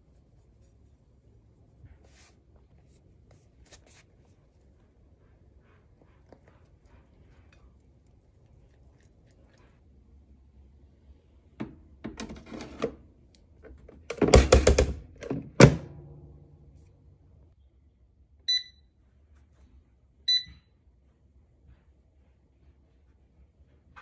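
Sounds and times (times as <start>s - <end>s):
short beeps from control panel: 18.5s - 18.9s, 20.3s - 20.7s.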